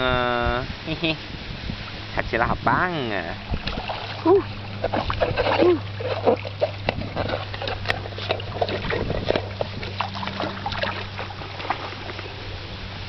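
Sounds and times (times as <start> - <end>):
steady low hum: 0.0 - 13.0
dog splashing in shallow water: 3.4 - 12.9.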